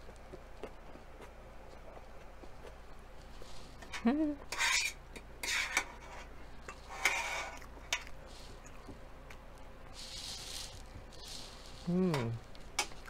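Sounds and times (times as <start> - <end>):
person humming: 11.8 - 12.4.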